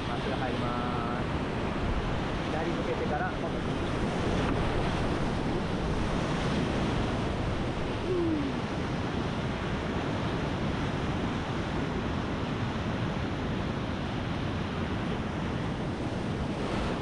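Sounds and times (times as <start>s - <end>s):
whitewater rushing: 7.5s - 8.7s.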